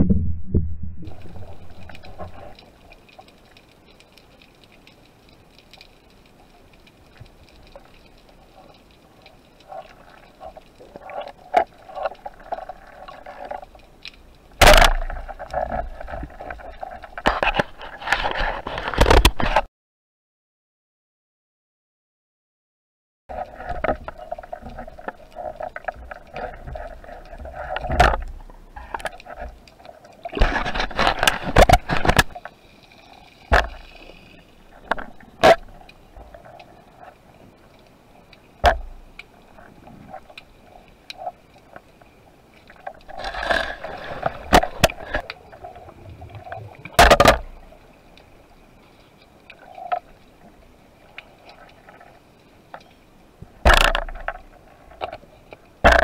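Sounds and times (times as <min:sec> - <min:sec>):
underwater clicks and knocks: 0:10.4 - 0:19.6, 0:23.4 - 0:29.7, 0:30.3 - 0:32.5, 0:33.5 - 0:34.0, 0:34.7 - 0:36.6, 0:38.6 - 0:40.5, 0:42.7 - 0:47.8, 0:53.5 - 0:56.0
gear rustling and scraping: 0:23.4 - 0:37.3, 0:42.6 - 0:47.8.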